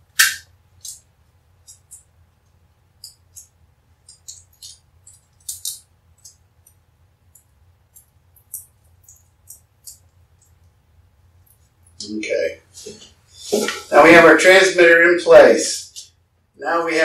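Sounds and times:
adhesive tape crinkling: 3.0s - 6.8s.

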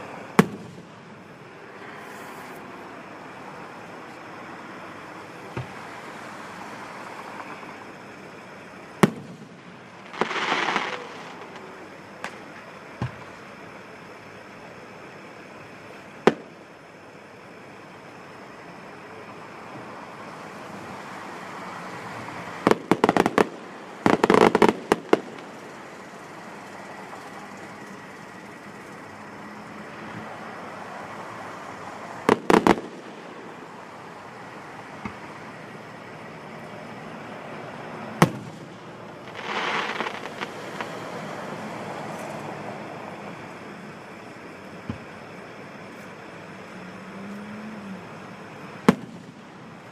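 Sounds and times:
fireworks bangs: 0.0s - 2.3s, 8.9s - 13.4s, 16.2s - 16.6s, 22.2s - 28.2s, 31.4s - 35.4s, 38.1s - 42.5s, 48.8s - 49.9s
fireworks crackle: 0.0s - 2.6s, 5.2s - 13.5s, 20.5s - 29.1s, 29.9s - 35.6s, 38.1s - 45.3s, 48.6s - 49.9s.

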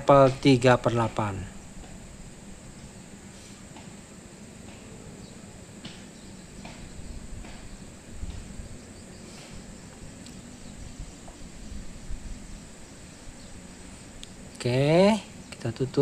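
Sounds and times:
air conditioner unit humming: 0.0s - 16.0s.

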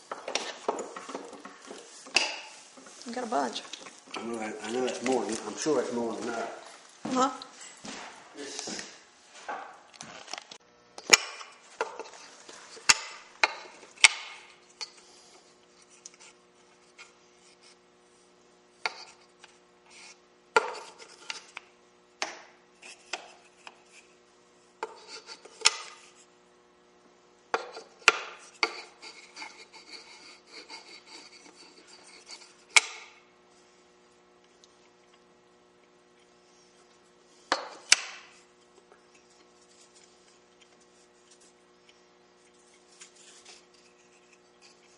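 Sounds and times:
light wood rubbing: 24.8s - 26.3s, 27.6s - 32.9s, 36.2s - 44.9s.

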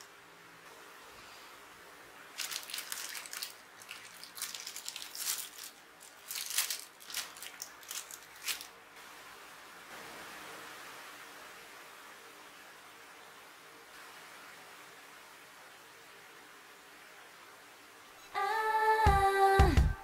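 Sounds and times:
plastic bag crinkling: 2.3s - 8.8s.

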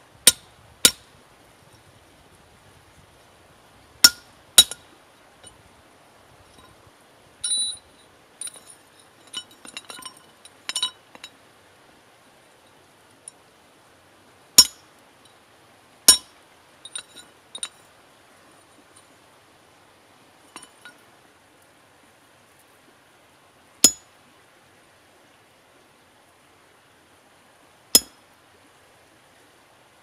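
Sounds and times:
anvil ringing ping: 4.0s - 4.8s, 7.4s - 7.8s, 14.6s - 14.8s
iron tools clinking on anvil: 4.0s - 4.8s, 7.4s - 11.3s, 14.6s - 14.8s, 16.1s - 17.8s, 20.5s - 21.0s, 23.8s - 24.0s.

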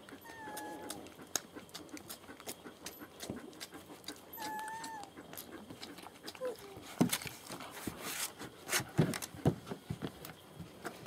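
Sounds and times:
puppy whining: 0.0s - 1.2s, 4.2s - 6.9s
puppies mouthing clicks and scuffles: 0.0s - 8.0s.

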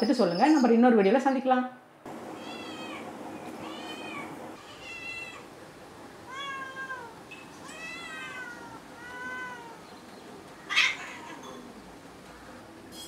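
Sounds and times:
cats meowing: 2.2s - 5.6s, 6.2s - 11.8s.

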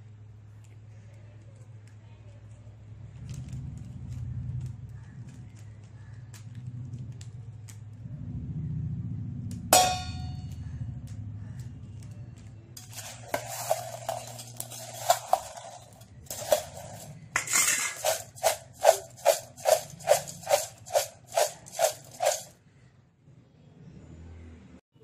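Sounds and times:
metal spoon stirring fried bread: 12.8s - 22.5s.

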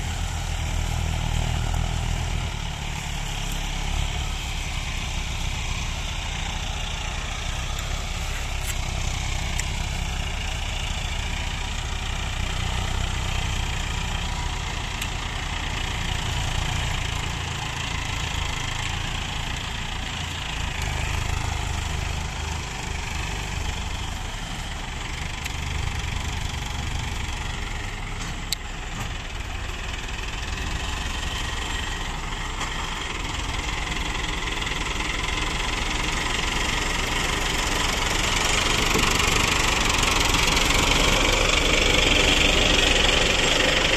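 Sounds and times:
second tractor engine running: 0.0s - 43.9s
tractor engine running: 0.0s - 43.9s.

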